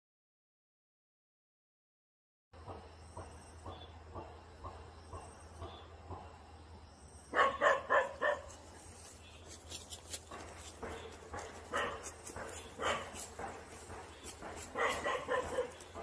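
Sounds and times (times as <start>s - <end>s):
dog barking: 7.3s - 8.6s, 11.3s - 13.6s, 14.6s - 16.0s.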